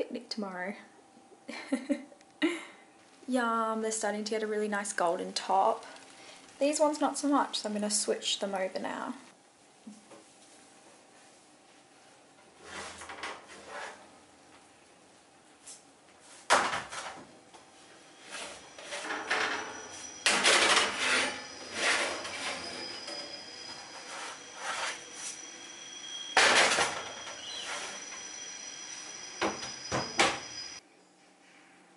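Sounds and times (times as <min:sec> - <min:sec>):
metal trays scraping on oven racks: 0:12.6 - 0:14.1, 0:18.0 - 0:28.3.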